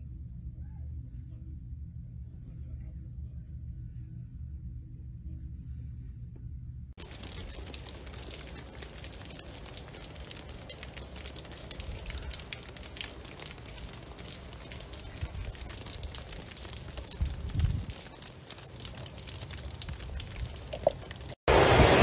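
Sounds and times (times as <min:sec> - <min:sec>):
ice crackling and ticking: 0:07.0 - 0:21.4.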